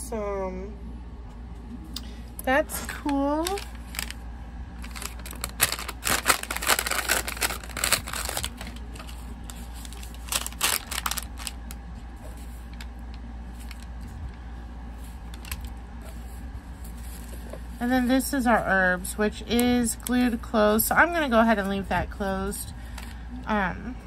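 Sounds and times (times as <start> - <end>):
low steady hum: 0.0 - 24.0
packaging crinkling: 2.8 - 14.2, 15.0 - 17.8.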